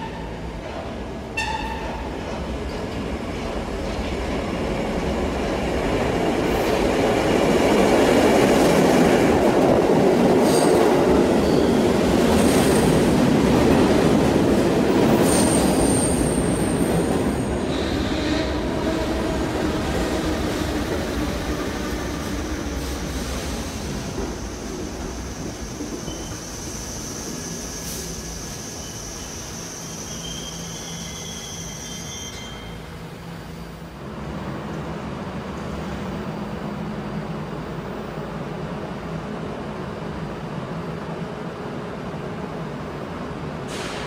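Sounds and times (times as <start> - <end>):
train rumbling: 0.0 - 44.0
high wheel squeals: 25.7 - 33.0.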